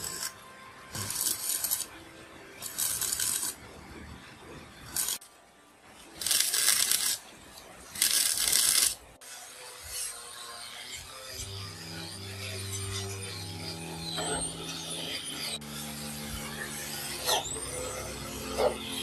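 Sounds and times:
welding arc sizzling crackle: 0.0s - 3.7s, 4.8s - 5.3s, 6.0s - 9.1s.

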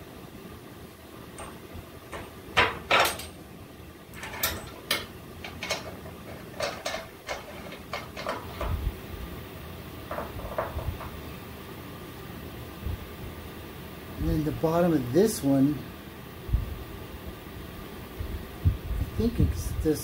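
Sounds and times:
metal parts clinking and knocking: 1.4s - 3.4s, 4.1s - 8.8s, 10.1s - 11.2s.

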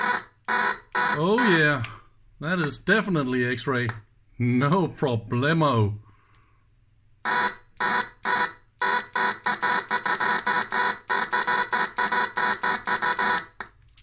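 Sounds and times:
geiger counter beeping: 0.0s - 1.8s, 7.3s - 13.7s.

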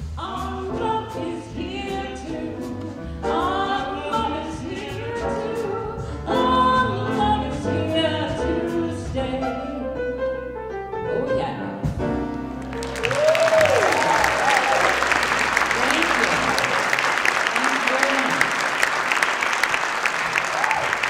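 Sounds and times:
woman singing jazz: 0.0s - 10.4s, 11.1s - 12.2s
upright double bass: 0.0s - 18.4s
grand piano: 0.0s - 21.0s.

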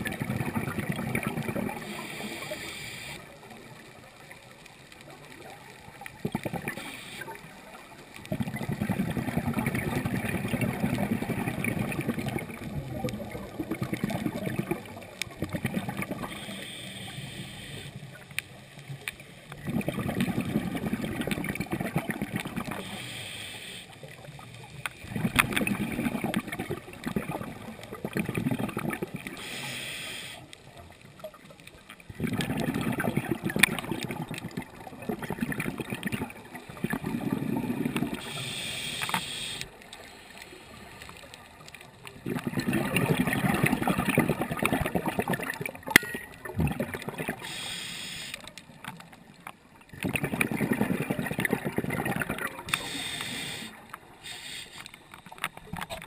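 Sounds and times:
regulator exhale bubbling: 0.0s - 3.2s, 8.3s - 18.0s, 19.5s - 23.9s, 25.0s - 30.5s, 32.1s - 39.8s, 42.2s - 45.8s, 46.4s - 48.4s, 49.9s - 54.9s
regulator inhale hiss: 1.8s - 3.2s, 6.8s - 7.3s, 16.2s - 18.1s, 22.8s - 24.2s, 29.4s - 30.6s, 38.2s - 41.3s, 47.4s - 48.5s, 52.7s - 55.0s.

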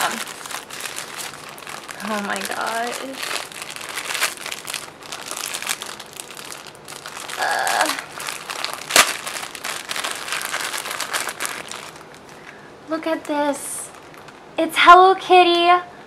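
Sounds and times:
plastic bag crinkling: 0.0s - 14.4s
sharp plastic crack: 7.0s - 12.4s.

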